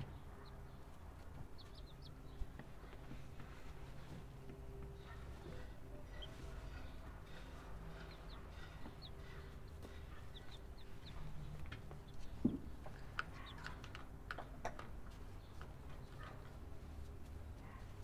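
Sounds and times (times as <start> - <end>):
chicks making short calls: 0.0 - 3.8, 4.9 - 14.5.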